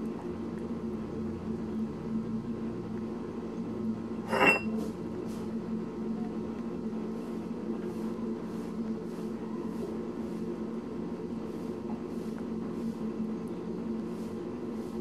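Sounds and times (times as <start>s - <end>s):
steady low hum: 0.0s - 15.0s
ceramic dish clinking on concrete: 4.3s - 4.8s.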